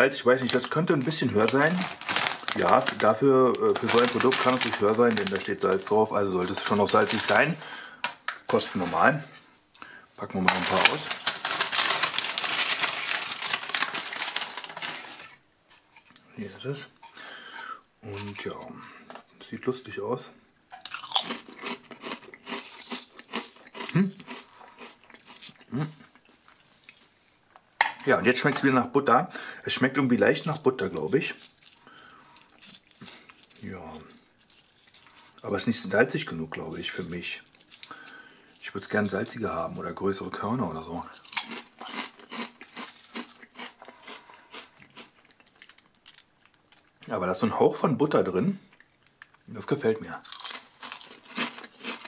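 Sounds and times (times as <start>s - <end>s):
potato chips crunching: 0.3s - 7.6s, 10.4s - 15.4s, 20.7s - 26.4s, 41.2s - 47.0s, 48.7s - 52.0s.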